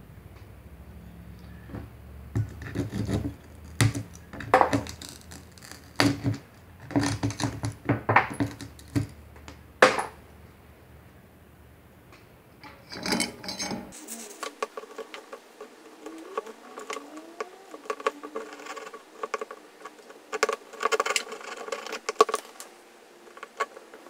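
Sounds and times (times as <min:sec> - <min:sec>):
glass crunching and snapping: 0:02.4 - 0:09.2, 0:14.6 - 0:24.0.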